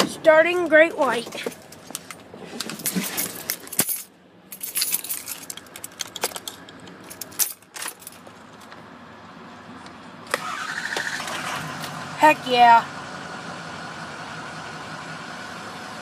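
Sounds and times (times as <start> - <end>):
keys jingling and clicking: 1.4 - 8.3.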